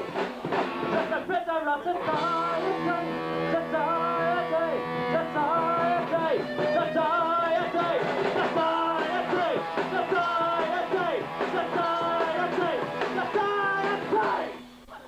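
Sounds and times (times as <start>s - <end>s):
rock band playing: 0.0s - 1.3s, 2.0s - 14.9s
man singing: 0.9s - 15.0s.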